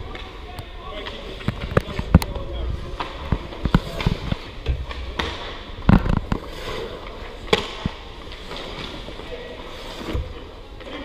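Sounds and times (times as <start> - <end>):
hockey pucks cracking off sticks: 1.0 - 9.2.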